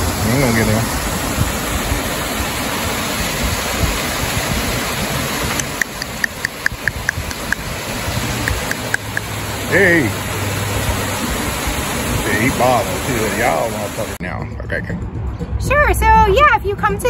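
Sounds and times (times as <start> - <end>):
steady rushing noise: 0.0 - 14.2
short high ticks or chirps: 8.4 - 9.3.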